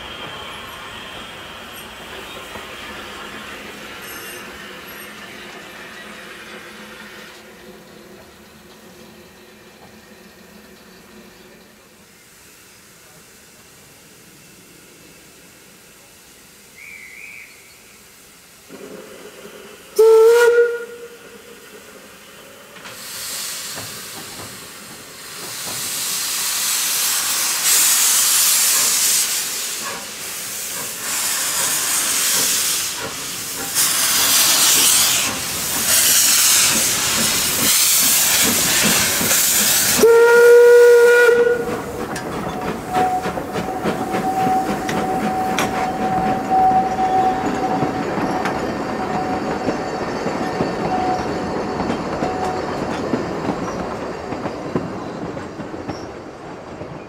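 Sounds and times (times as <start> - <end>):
steam locomotive hissing steam: 0.0 - 57.0
train rumbling along rails: 0.0 - 57.0
steam whistle blast: 16.8 - 17.8, 19.9 - 21.4, 39.8 - 41.8, 42.9 - 48.0
rail-joint clicks: 22.7 - 40.1, 41.4 - 57.0.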